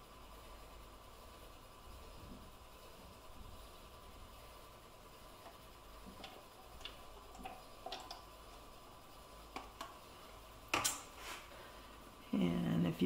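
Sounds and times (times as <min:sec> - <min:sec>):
plastic cups ticking: 0:05.4 - 0:10.1.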